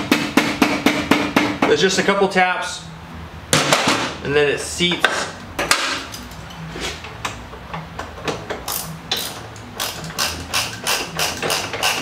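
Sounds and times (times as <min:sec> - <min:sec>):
hand tools and metal hardware clicking: 0:08.0 - 0:12.0.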